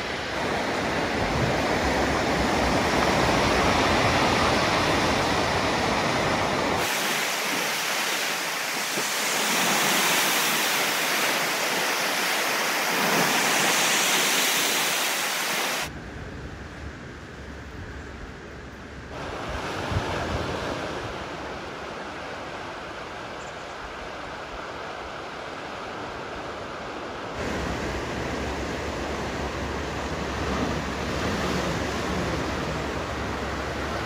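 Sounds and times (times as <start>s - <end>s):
surf breaking on rocks: 0.0s - 15.9s.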